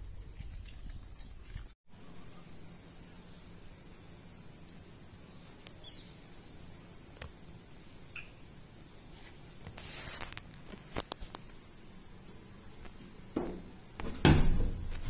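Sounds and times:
brief rustle: 9.2s - 11.5s.

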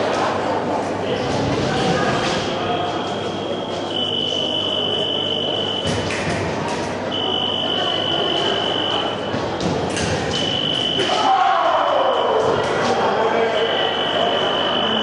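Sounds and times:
fencing scoring machine signal: 3.0s - 6.0s, 7.1s - 9.3s, 10.3s - 11.3s, 13.5s - 15.0s.

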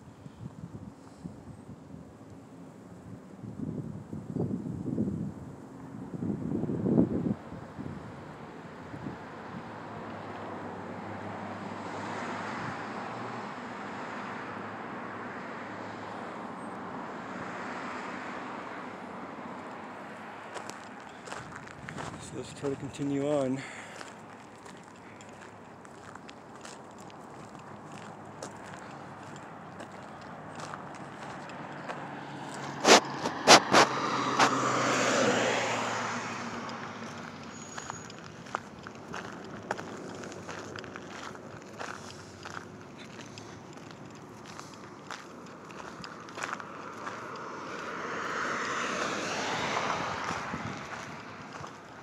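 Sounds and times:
vehicle passing by: 5.6s - 52.0s
car driving past: 8.2s - 22.6s, 27.4s - 52.0s.

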